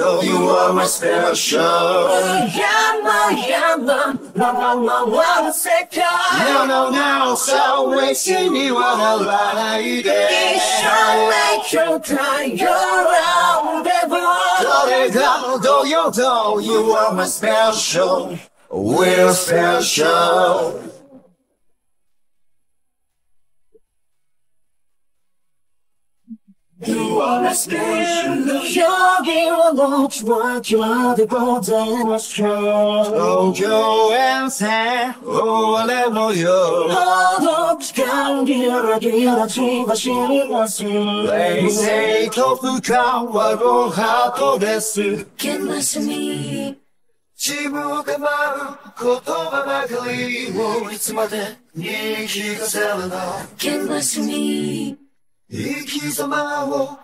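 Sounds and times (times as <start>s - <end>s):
man singing unaccompanied: 6.3s - 21.1s, 26.8s - 46.2s, 55.6s - 57.0s.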